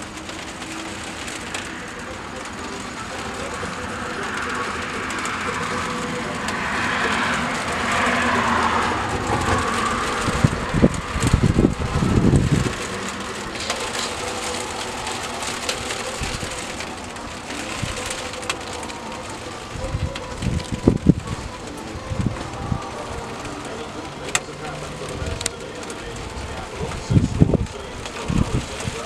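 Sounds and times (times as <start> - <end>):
car tyres hissing on wet road: 0.0 - 29.0
wind buffeting microphone: 4.3 - 18.2, 19.2 - 24.0, 24.9 - 29.0.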